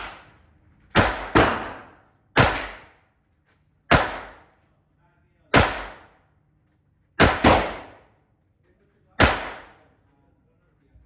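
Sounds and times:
pistol shots echoing indoors: 0:00.0 - 0:03.1, 0:03.9 - 0:04.7, 0:05.4 - 0:08.4, 0:09.1 - 0:10.0.

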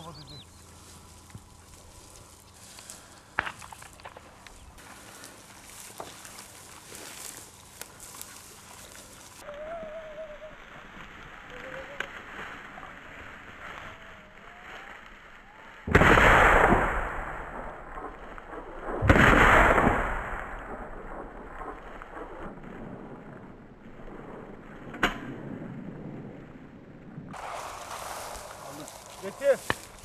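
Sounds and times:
shotgun shots: 0:15.9 - 0:22.5.

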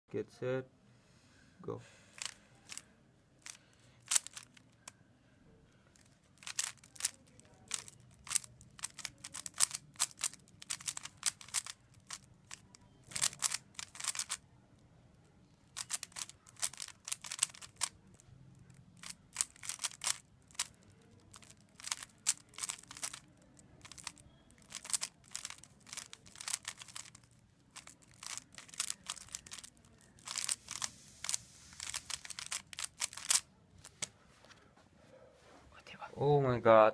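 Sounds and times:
puzzle cube layers clicking: 0:03.4 - 0:04.9, 0:06.4 - 0:14.4, 0:15.7 - 0:18.2, 0:19.0 - 0:34.0.

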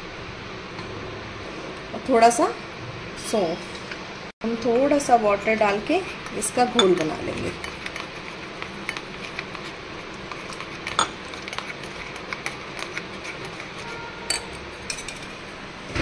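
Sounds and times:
fork clinking against glass bowl: 0:13.9 - 0:15.3.

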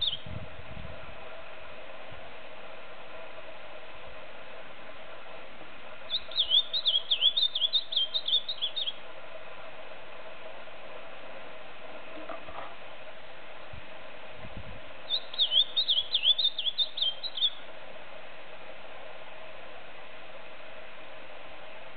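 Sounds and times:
bird singing sliding whistled notes: 0:00.0 - 0:00.2, 0:06.1 - 0:09.0, 0:15.1 - 0:17.6.

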